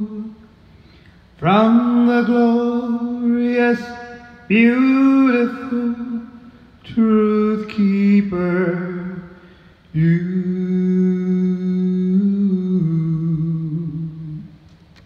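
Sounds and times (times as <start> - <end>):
man humming: 10.0 - 14.6.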